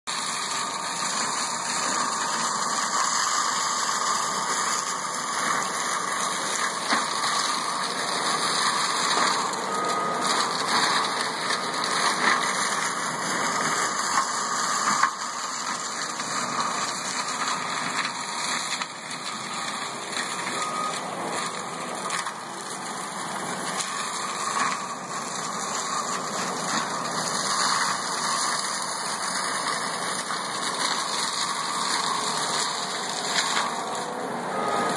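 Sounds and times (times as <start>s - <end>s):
forestry mower grinding seedlings: 0.1s - 34.9s.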